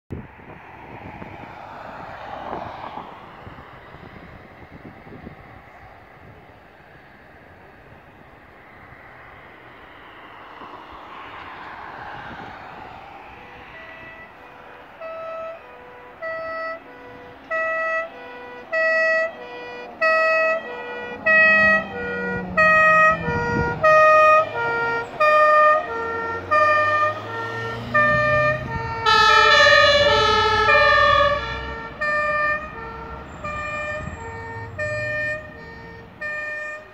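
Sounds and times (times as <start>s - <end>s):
truck engine and tyre rumble: 0.1s - 36.9s
two-tone siren: 11.2s - 36.9s.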